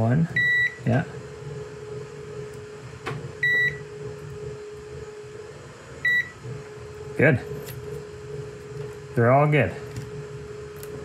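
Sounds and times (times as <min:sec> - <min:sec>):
steady hum: 0:00.0 - 0:11.0
multimeter beeps: 0:00.4 - 0:00.9, 0:03.4 - 0:03.8, 0:06.0 - 0:06.4.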